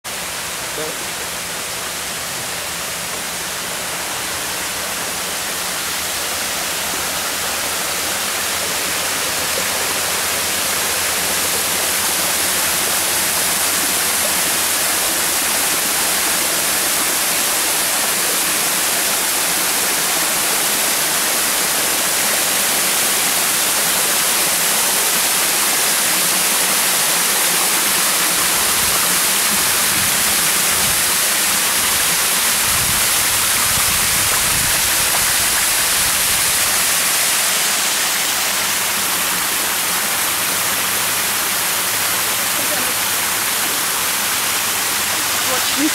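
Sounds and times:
small waterfall splashing into pond: 0.1s - 45.9s.

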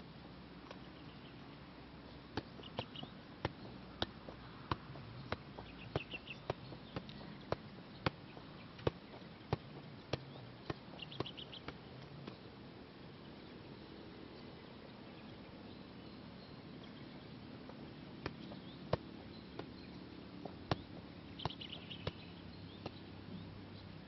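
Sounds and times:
soccer ball taps off foot: 2.3s - 12.4s, 20.4s - 23.0s.

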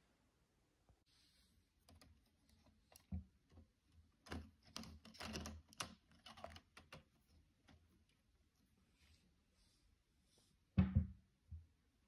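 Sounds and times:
plastic parts clicking and rattling: 1.8s - 7.9s.

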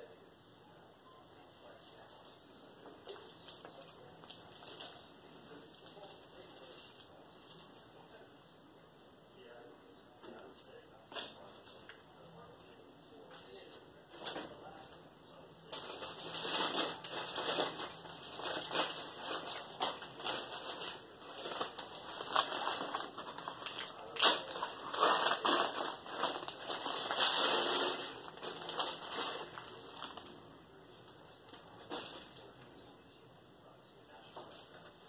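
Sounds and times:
rustling and crunching: 1.6s - 8.2s, 15.6s - 33.0s.

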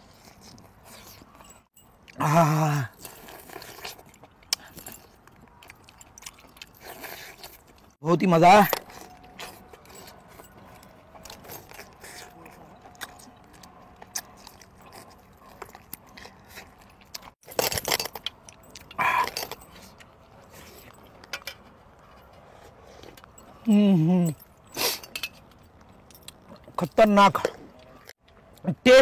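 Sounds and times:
biting and chewing: 0.0s - 28.6s
dishes clinking and scraping: 20.8s - 23.6s, 24.8s - 25.7s.

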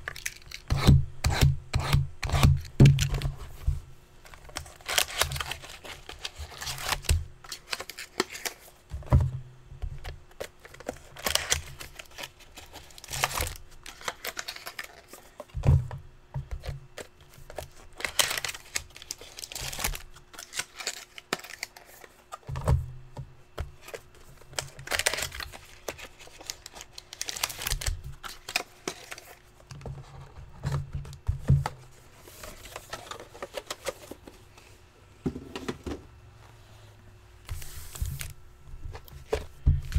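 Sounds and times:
faint steady hum: 0.0s - 39.9s
paper and plastic wrap rustling: 4.3s - 8.8s, 10.3s - 15.5s, 17.0s - 22.5s, 23.8s - 30.8s, 31.7s - 34.8s, 37.5s - 39.9s.

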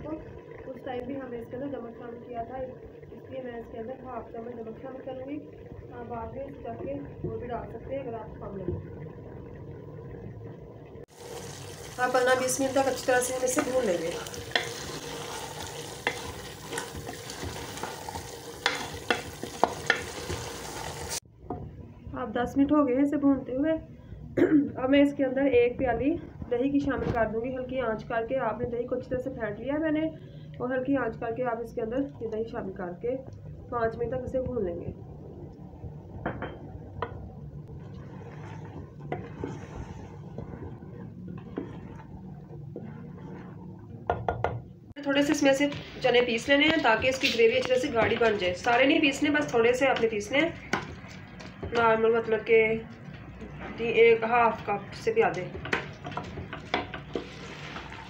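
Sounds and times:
chickpeas sizzling in a pot: 11.0s - 21.2s, 45.2s - 52.5s, 54.5s - 58.0s
spoon scraping a metal pot: 13.5s - 20.8s.

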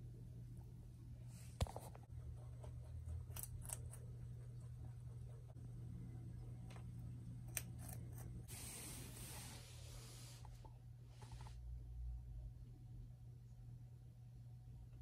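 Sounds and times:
low hum: 0.0s - 15.0s
rabbit nibbling clicks: 2.4s - 5.2s, 6.4s - 8.4s.

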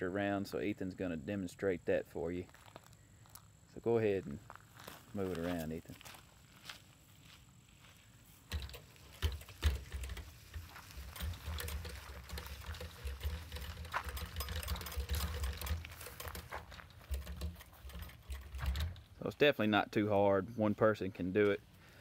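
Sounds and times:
wheels rumbling over gravel: 8.4s - 19.4s
wooden frame rattling: 8.5s - 19.2s.

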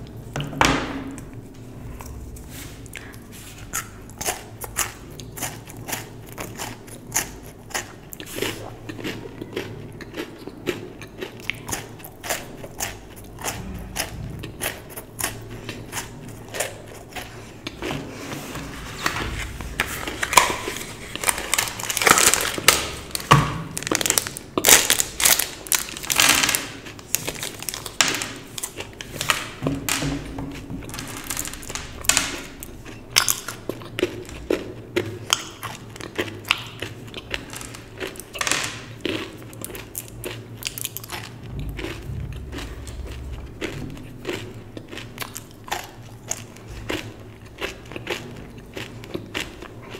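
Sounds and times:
chocolate being chewed: 1.2s - 49.9s
paper wrapper crinkling and tearing: 18.7s - 29.6s, 30.8s - 32.5s.

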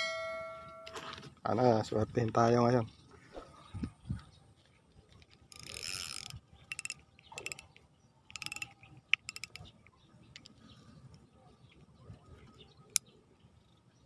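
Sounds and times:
reel gears whirring: 5.5s - 7.6s, 8.3s - 9.6s
reel rapid clicking: 5.5s - 7.6s, 8.3s - 9.6s.

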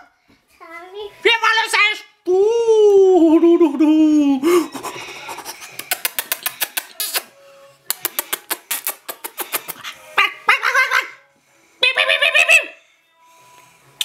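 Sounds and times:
person imitating monkey chatter: 4.8s - 7.3s, 7.9s - 11.2s
high-pitched monkey call imitation: 8.7s - 11.2s, 11.8s - 12.8s.

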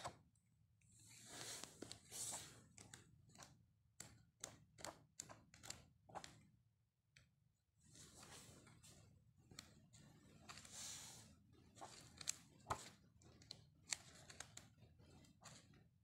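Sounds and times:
paper pages rustling: 1.2s - 2.6s, 10.4s - 13.0s
pages flipping with clicks: 1.2s - 6.4s, 11.8s - 15.6s.

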